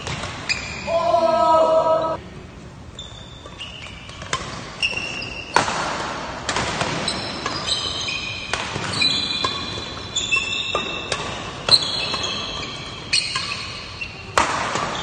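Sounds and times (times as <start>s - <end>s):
rackets striking shuttlecock: 3.8s - 15.0s.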